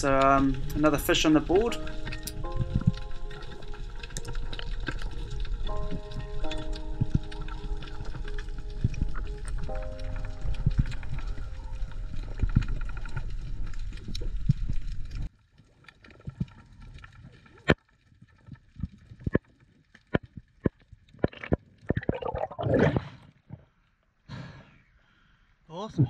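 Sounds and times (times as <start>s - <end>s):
background music: 0.0s - 13.8s
underwater clicks and crackles: 0.0s - 23.9s
bubbling water rush: 21.2s - 23.2s.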